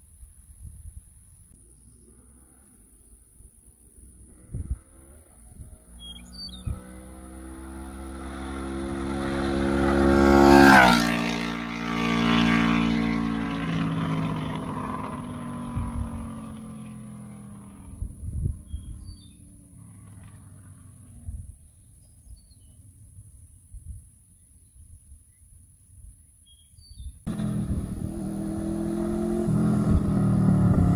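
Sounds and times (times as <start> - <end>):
motorcycle passing at speed: 3.9 - 21.6, 27.3 - 30.9.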